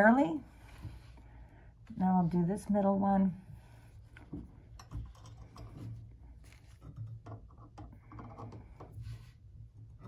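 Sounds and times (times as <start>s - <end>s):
faint metal clicks and scrapes: 4.1s - 9.4s.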